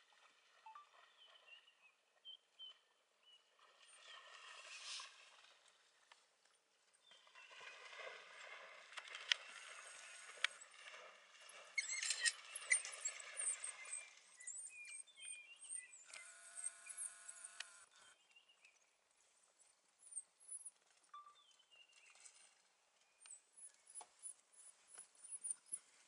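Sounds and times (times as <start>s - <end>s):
wild dogs twittering and squeaking: 11.5s - 17.6s.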